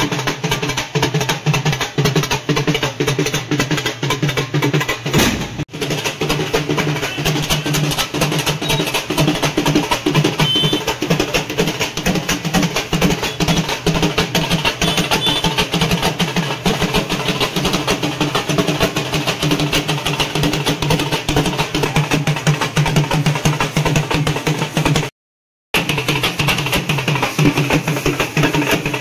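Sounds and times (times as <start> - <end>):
fast drumming: 0.0 - 25.1, 25.7 - 29.0.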